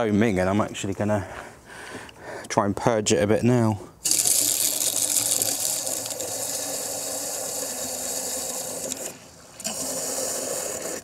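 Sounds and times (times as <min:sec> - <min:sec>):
water rushing from hose: 0:04.0 - 0:11.0.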